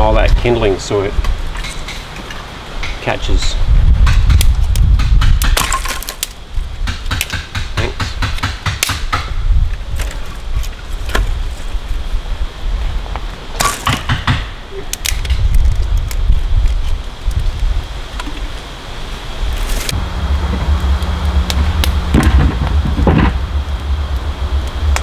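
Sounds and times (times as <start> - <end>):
wind rumble on microphone: 2.9 - 5.6, 9.0 - 13.5, 15.1 - 25.0
kindling cracking and snapping: 14.9 - 17.7.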